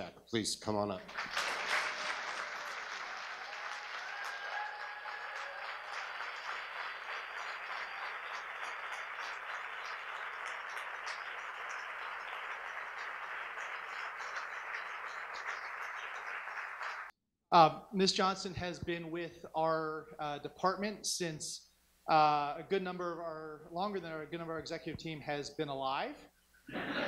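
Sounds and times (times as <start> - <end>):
audience applauding: 1.0 - 17.1.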